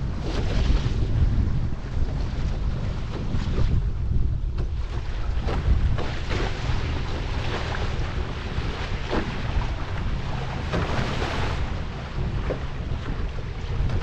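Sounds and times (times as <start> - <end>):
water rushing along hull: 0.0 - 14.0
wind buffeting microphone: 0.0 - 14.0
paddle stroke splashes: 4.6 - 14.0.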